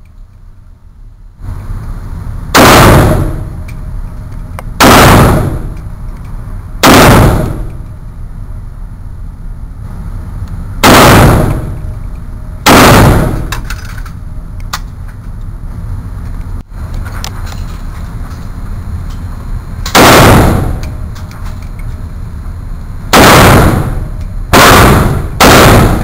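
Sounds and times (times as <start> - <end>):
rifle shots echoing indoors: 2.5 - 3.8, 4.8 - 6.0, 6.8 - 8.0, 10.8 - 14.0, 19.9 - 21.2, 23.1 - 26.0.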